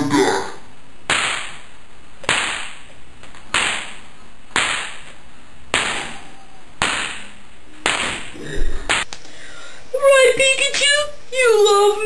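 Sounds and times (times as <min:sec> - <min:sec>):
hand slapping skin: 0:02.2 - 0:04.0.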